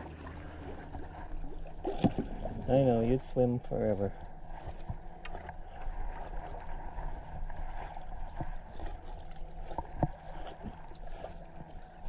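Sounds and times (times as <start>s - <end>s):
water swishing along canoe hull: 0.0s - 12.0s
short knocks on canoe: 1.8s - 2.6s.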